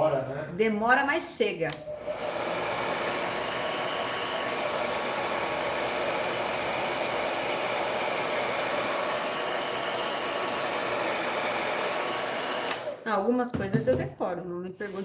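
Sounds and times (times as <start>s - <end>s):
hair dryer blowing: 1.7s - 13.2s.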